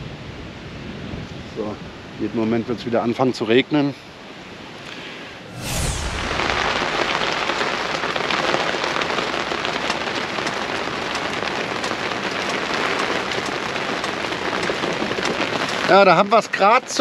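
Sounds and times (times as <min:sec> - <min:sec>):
rain on boat cover: 0:07.5 - 0:17.0
raindrops ticking: 0:09.8 - 0:15.9.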